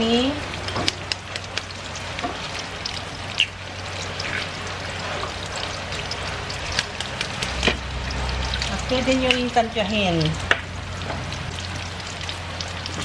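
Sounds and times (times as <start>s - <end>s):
bacon sizzling in a pan: 0.0s - 13.0s.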